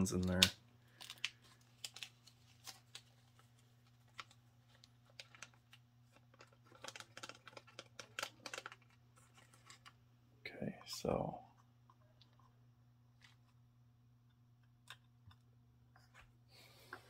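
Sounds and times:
faint steady hum: 0:00.0 - 0:17.0
plastic bag crinkling: 0:00.8 - 0:10.0.

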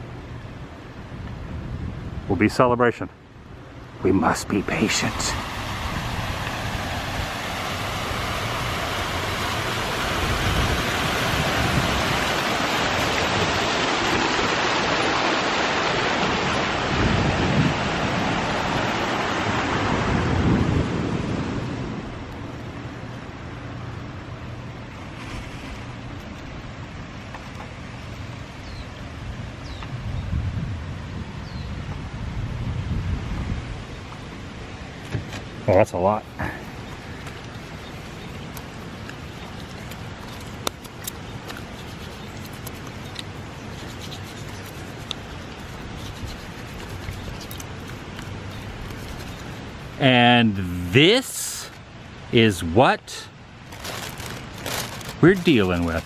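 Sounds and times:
wind on microphone: 0:01.0 - 0:02.4, 0:04.7 - 0:14.5, 0:16.2 - 0:22.3, 0:28.6 - 0:34.0, 0:41.6 - 0:50.0
fountain jets splashing: 0:04.0 - 0:17.0, 0:35.7 - 0:51.8, 0:52.4 - 0:56.0
background hiss: 0:34.0 - 0:56.0
plastic bag crinkling: 0:53.6 - 0:56.0.

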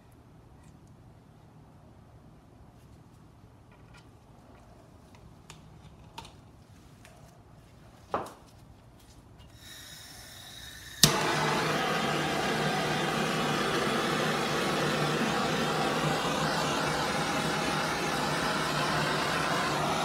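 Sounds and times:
gas hissing: 0:09.6 - 0:20.0
torch flame hissing: 0:09.6 - 0:20.0
gas torch igniter click: 0:10.1 - 0:20.0.

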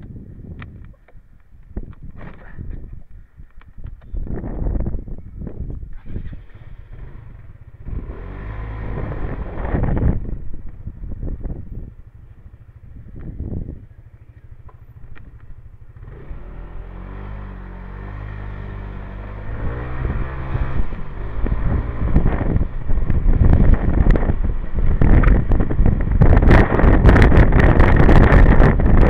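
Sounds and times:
wind buffeting microphone: 0:00.0 - 0:29.0
motorbike engine: 0:03.8 - 0:29.0.

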